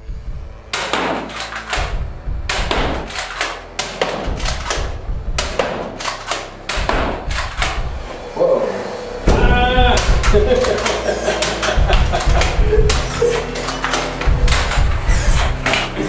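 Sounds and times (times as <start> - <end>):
darts knocking against board: 0.7 - 7.8.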